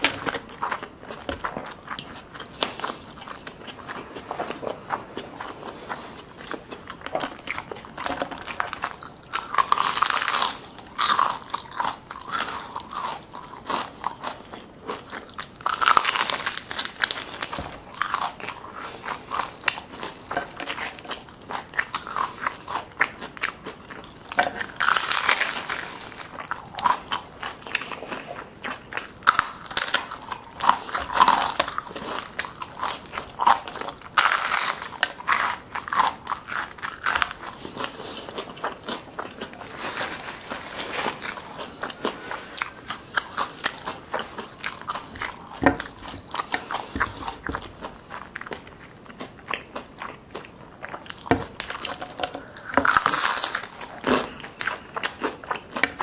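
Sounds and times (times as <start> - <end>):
crisp crunches of chewing: 0.0 - 56.0.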